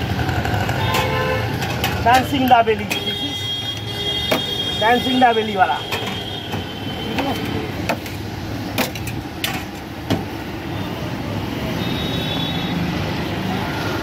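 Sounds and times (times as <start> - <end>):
street traffic: 0.0 - 14.0
steel utensils clinking: 5.8 - 9.8.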